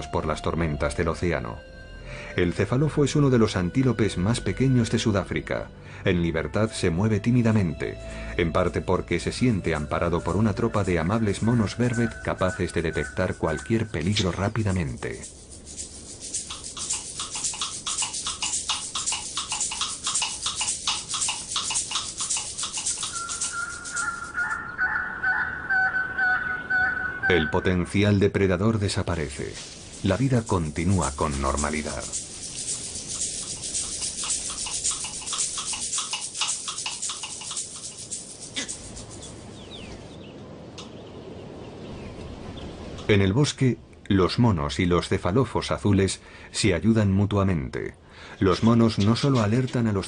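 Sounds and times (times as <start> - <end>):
rapid rhythmic animal calling: 9.4 - 27.9, 29.8 - 40.1
monkeys chattering in alarm: 11.3 - 27.7, 31.2 - 39.8
short sliding bird chirps: 15.5 - 25.5.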